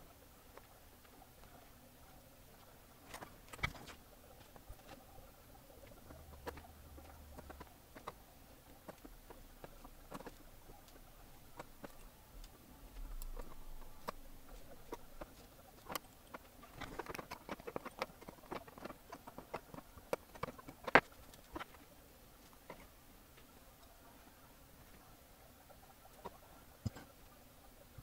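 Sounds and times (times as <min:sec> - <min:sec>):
small clicks and taps: 0:05.8 - 0:23.9, 0:26.1 - 0:27.2.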